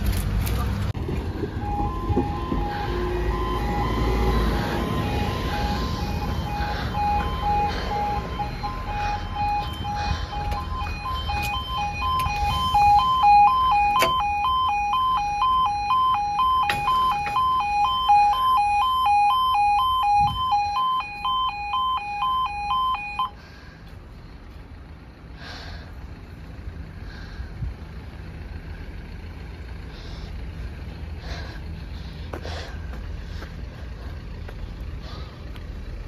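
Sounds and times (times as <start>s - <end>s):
road traffic rumble: 0.0s - 36.0s
two-tone level crossing alarm: 1.4s - 23.4s.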